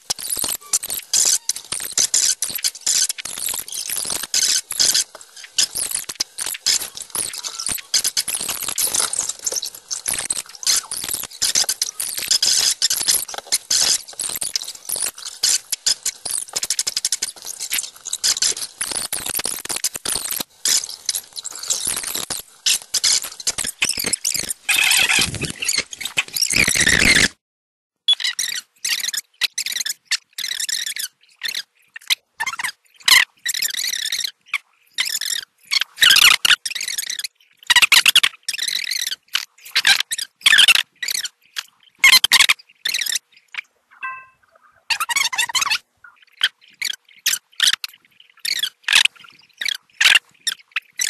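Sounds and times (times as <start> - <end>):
stylus scratching on tablet: 0.0 - 25.8.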